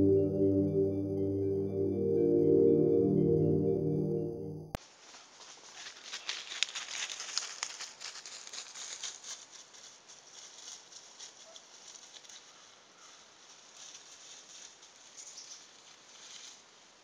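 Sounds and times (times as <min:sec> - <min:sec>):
dry leaves crackling under paws: 0:05.0 - 0:17.0.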